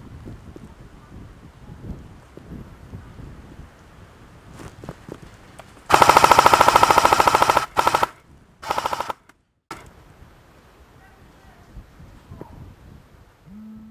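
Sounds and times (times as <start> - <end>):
airsoft gun firing bursts: 5.9 - 9.3.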